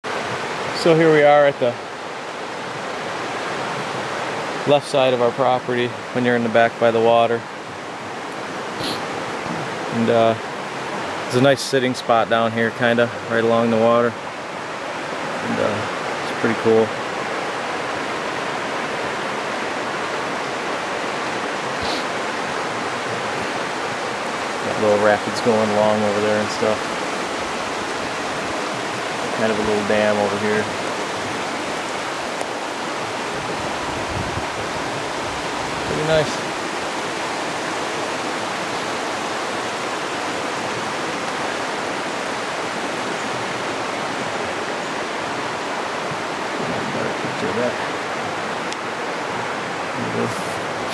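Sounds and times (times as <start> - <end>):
river water over rapids: 0.0 - 50.9.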